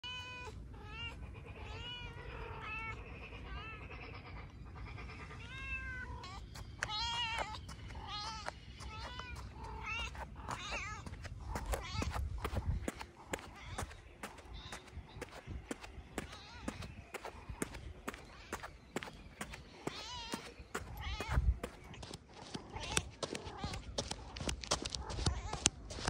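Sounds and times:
steady low rumble: 6.0s - 26.0s.

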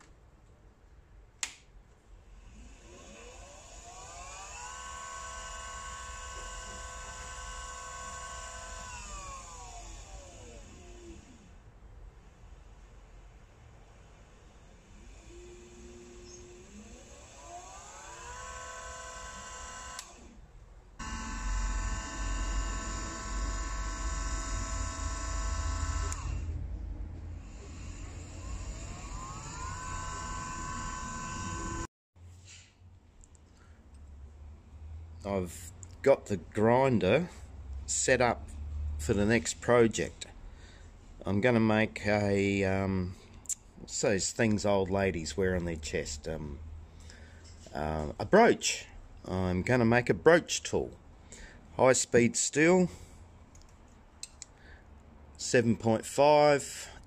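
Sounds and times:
grinder motor whine: 2.4s - 11.6s, 14.2s - 20.4s, 21.0s - 26.6s, 27.2s - 31.9s
low rumble: 26.4s - 28.9s.

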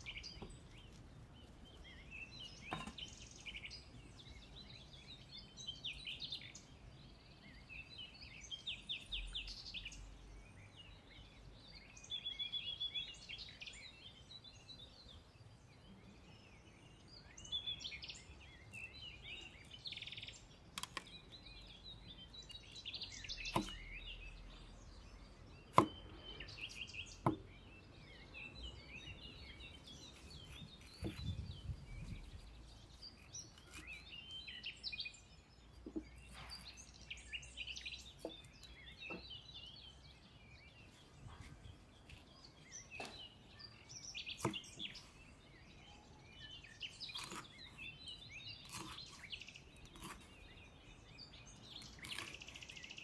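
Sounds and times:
birds chirping: 0.0s - 53.0s
cleaver knocking on chopping board: 27.2s - 27.4s.

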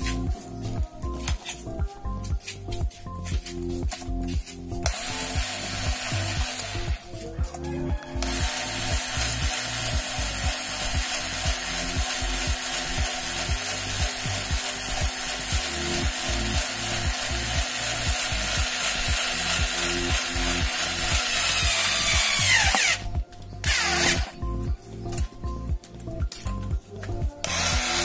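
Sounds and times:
background music beat: 0.0s - 28.0s
drill winding down whine: 4.8s - 7.0s, 7.9s - 23.0s, 23.6s - 24.4s, 27.4s - 28.0s
electric drill boring into metal: 4.8s - 7.1s, 7.9s - 24.4s, 27.4s - 28.0s.

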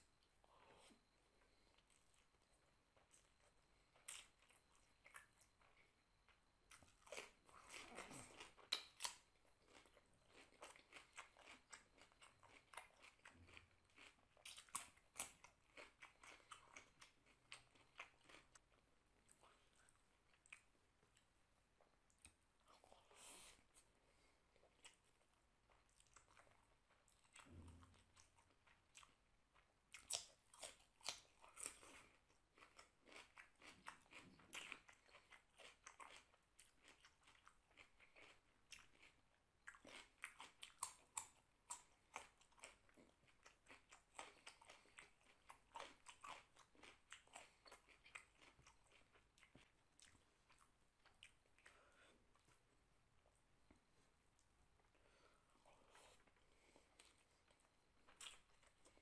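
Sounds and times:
soft chewing: 0.0s - 59.0s.

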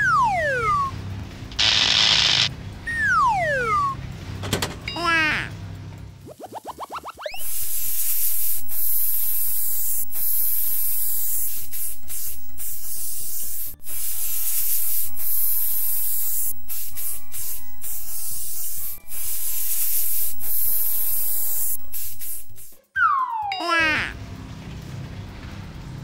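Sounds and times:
faint music: 0.0s - 26.0s
loud spraying hiss: 1.6s - 2.5s, 7.4s - 22.8s.

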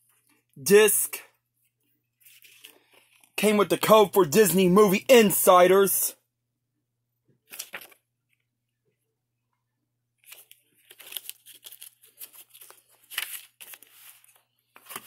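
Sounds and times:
paper card rustling: 2.2s - 3.4s, 7.5s - 8.4s, 10.2s - 15.0s.

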